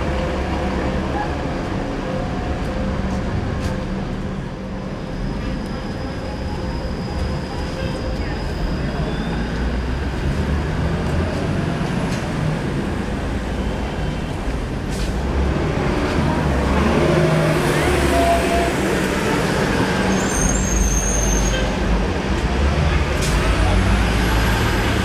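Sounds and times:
traffic rumbling: 0:00.0 - 0:25.0.

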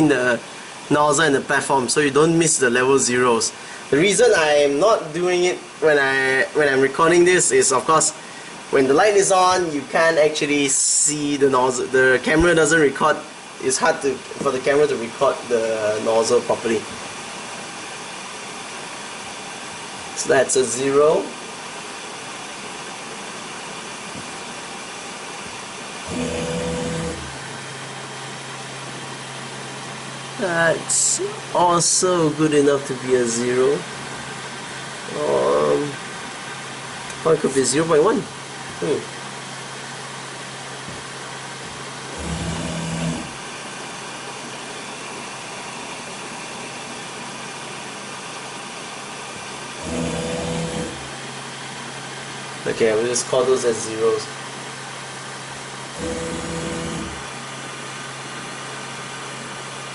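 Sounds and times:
printer humming: 0:23.2 - 0:44.2, 0:49.4 - 0:52.7, 0:54.8 - 0:59.9
stepper motors whining: 0:26.0 - 0:29.4, 0:40.8 - 0:43.5, 0:49.8 - 0:51.4, 0:56.0 - 0:57.4
low hum: 0:26.0 - 0:30.4, 0:41.7 - 0:43.5, 0:49.8 - 0:51.4, 0:56.0 - 0:57.4.

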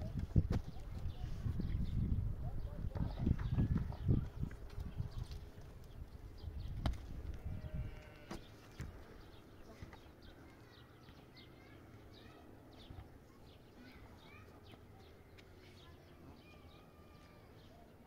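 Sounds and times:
faint birdsong chirps: 0:00.1 - 0:18.0.

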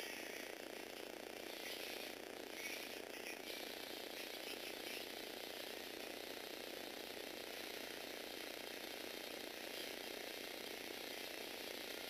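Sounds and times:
toy electric motors and gears whirring: 0:00.0 - 0:12.0.

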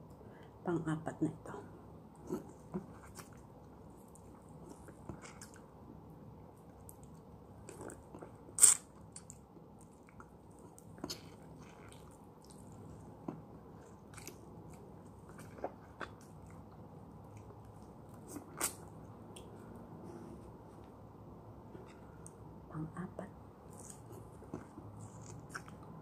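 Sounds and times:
person chewing lemon: 0:06.7 - 0:19.7, 0:23.7 - 0:26.0.

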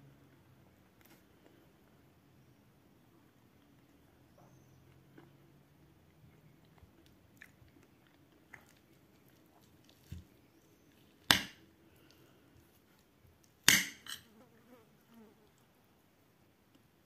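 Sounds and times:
faint chewing: 0:03.2 - 0:13.6.

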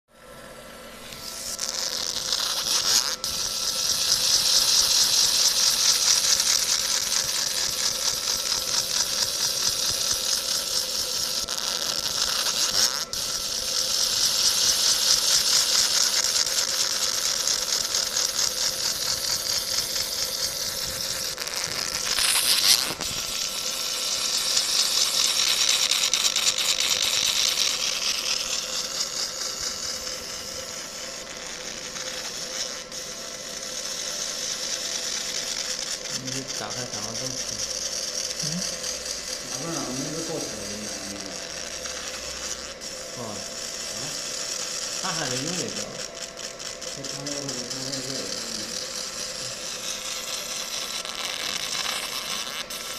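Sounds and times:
laser cutting crackling buzz: 0:00.5 - 0:52.9.

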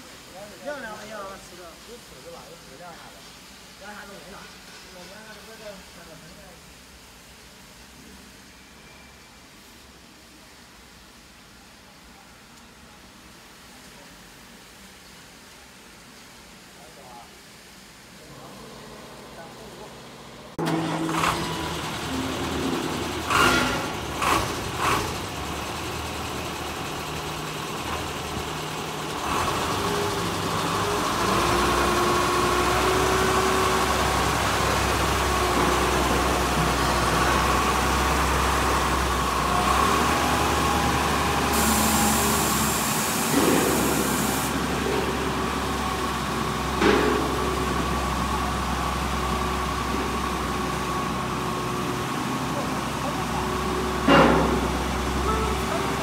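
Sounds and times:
hiss: 0:00.0 - 0:19.7, 0:22.7 - 0:53.3
diesel engine running: 0:18.3 - 0:56.0
clunks: 0:54.0 - 0:55.9.

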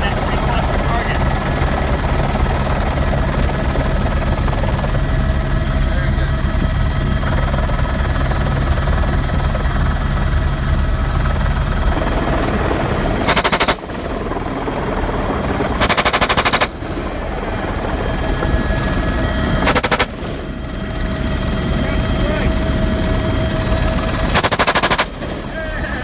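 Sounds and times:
helicopter engine and rotor: 0:00.0 - 0:26.0
machine gun bursts: 0:13.2 - 0:13.8, 0:15.8 - 0:16.7, 0:19.6 - 0:20.2, 0:24.2 - 0:25.3.

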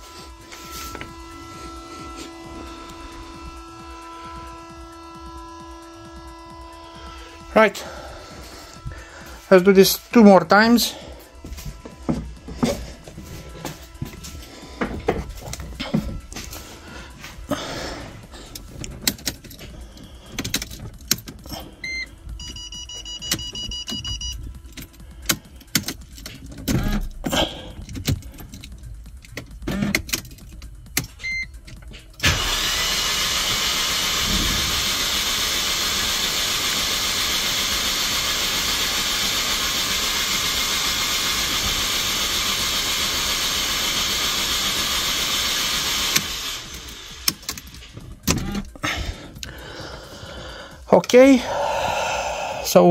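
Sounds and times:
engine starter whirring: 0:00.0 - 0:52.9
electronic beeps: 0:21.8 - 0:24.6.

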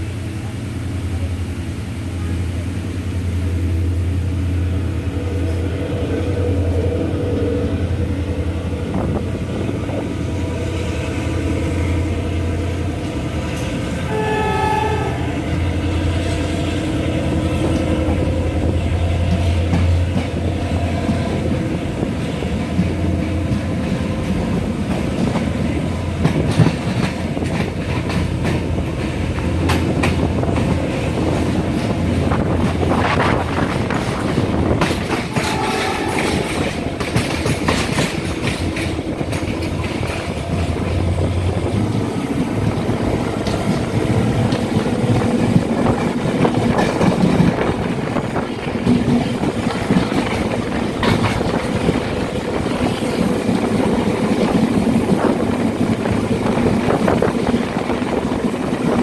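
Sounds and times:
train engine drone: 0:00.0 - 0:59.0
wheels clacking over rail joints: 0:17.3 - 0:59.0.

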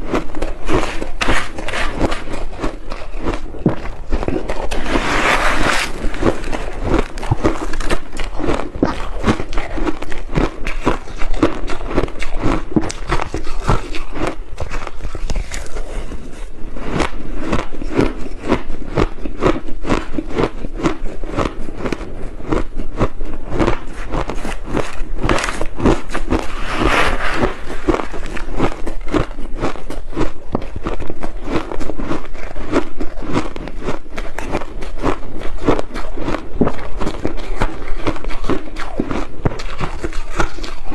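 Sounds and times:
chewing crushed ice: 0:00.0 - 0:26.6, 0:27.4 - 0:40.9
spoon scraping ice: 0:04.3 - 0:11.3.

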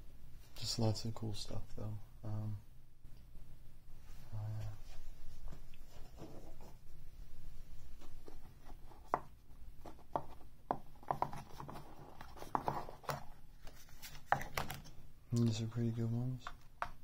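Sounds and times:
soft rubbing: 0:03.9 - 0:10.5.

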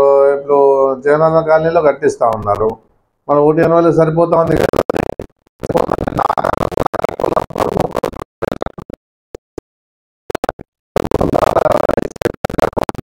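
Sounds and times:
man talking garbled: 0:00.0 - 0:04.7.

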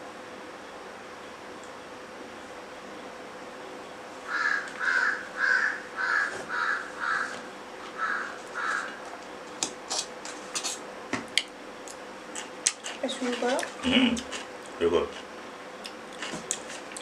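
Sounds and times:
crow cawing: 0:04.3 - 0:09.0.

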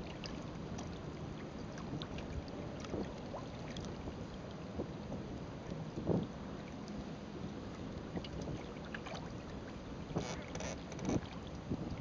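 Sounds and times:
water lapping along hull: 0:00.0 - 0:12.0.

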